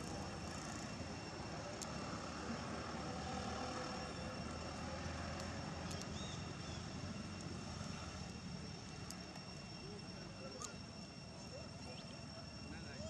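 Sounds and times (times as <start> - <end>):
distant engine drone: 0.0 - 13.0
faint high whine: 0.0 - 13.0
outdoor background hiss: 0.0 - 13.0
small clicks: 5.3 - 6.3.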